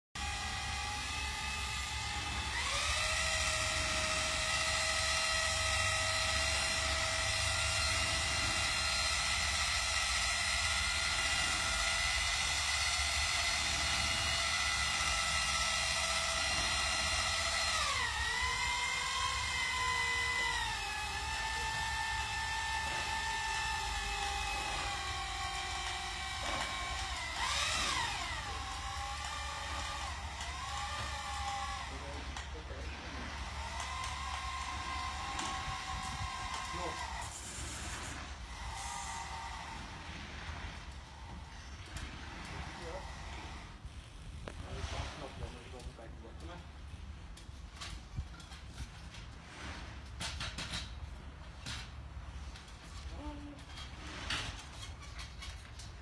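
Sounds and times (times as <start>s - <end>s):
motor whining: 0.2s - 44.9s.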